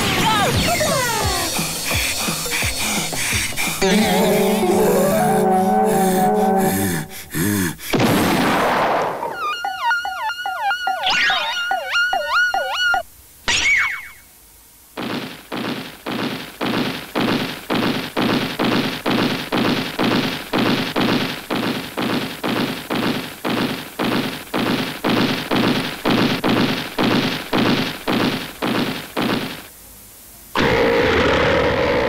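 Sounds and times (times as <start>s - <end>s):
cartoon heavy thuds: 7.9s - 9.2s, 15.0s - 29.7s.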